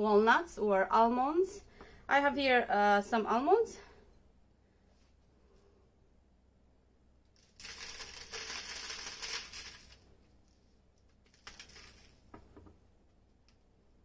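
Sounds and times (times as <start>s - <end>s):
crumbs rustling onto paper: 7.4s - 12.3s.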